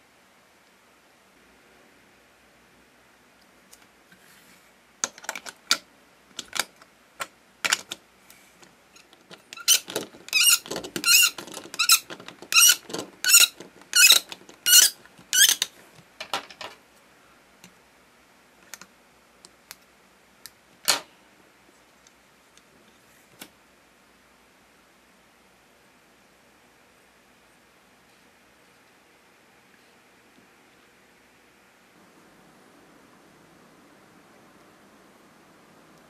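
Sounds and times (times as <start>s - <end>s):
plastic toy press squeaking: 9.0s - 15.7s.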